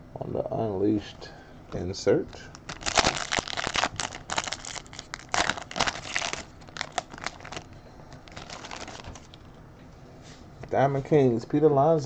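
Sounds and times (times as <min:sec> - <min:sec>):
trading cards rustling: 0:02.5 - 0:09.4.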